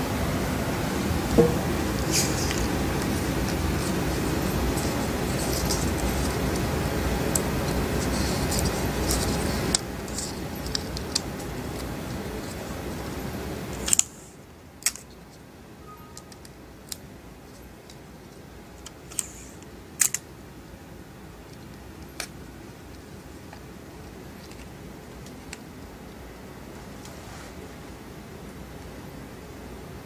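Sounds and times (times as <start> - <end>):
steady background hiss: 0.0 - 30.0.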